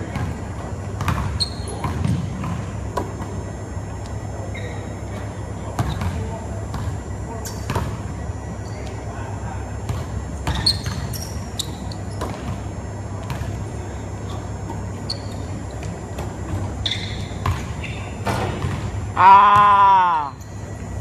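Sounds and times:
sneaker squeaks: 0:00.0 - 0:21.0
steady low hum: 0:00.0 - 0:21.0
basketball bouncing on hardwood floor: 0:01.0 - 0:03.1.

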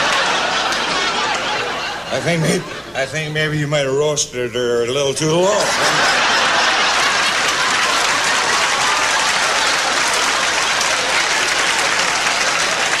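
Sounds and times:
audience applauding: 0:00.0 - 0:01.7, 0:05.8 - 0:13.0
audience laughing: 0:00.0 - 0:03.2, 0:05.4 - 0:13.0.

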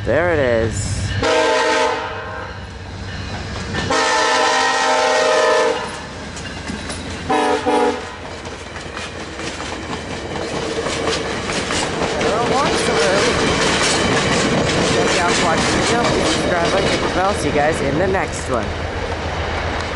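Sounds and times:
train cars rumbling: 0:00.0 - 0:19.9
locomotive air horn blasts: 0:01.2 - 0:02.5, 0:03.9 - 0:05.9, 0:07.3 - 0:08.1
wheels clacking over rail joints: 0:05.7 - 0:19.9.

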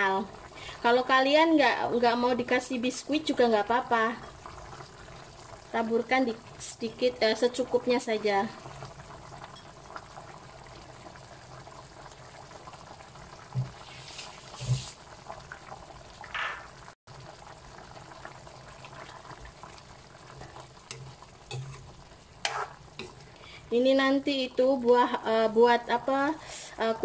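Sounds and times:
sauce bubbling in a wok: 0:00.0 - 0:26.6
spoon going into a pan: 0:20.4 - 0:23.2.

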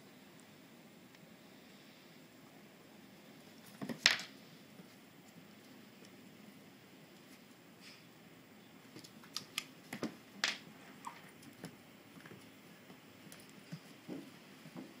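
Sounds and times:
claws clicking on hardwood floor: 0:03.7 - 0:04.3, 0:08.9 - 0:12.6.

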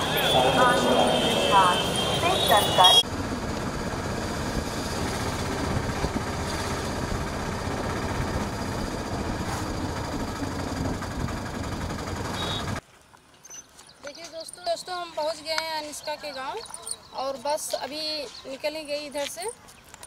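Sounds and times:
vehicle rumble and road noise: 0:00.0 - 0:12.8.

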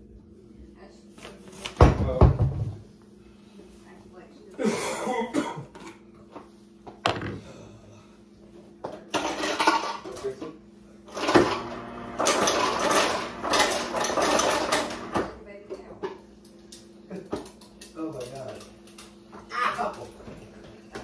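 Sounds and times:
clattering and rustling: 0:09.0 - 0:10.4.

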